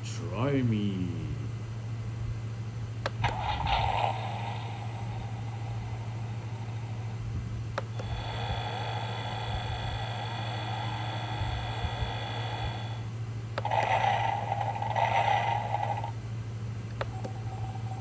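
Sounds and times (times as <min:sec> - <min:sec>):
high hum: 0:00.0 - 0:18.0
toy car engine sound effects: 0:13.6 - 0:16.2.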